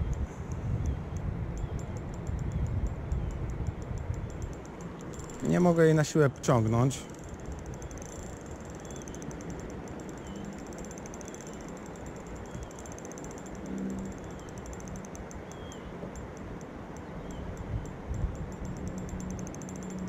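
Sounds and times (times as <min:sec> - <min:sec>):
fishing reel ticking: 0:00.0 - 0:20.0
faint high chirps: 0:07.0 - 0:16.3.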